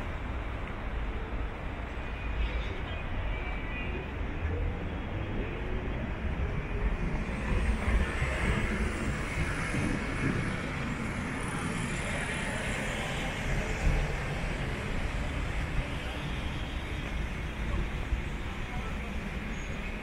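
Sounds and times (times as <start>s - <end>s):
traffic engine rumble and tyre noise: 0.0s - 20.0s.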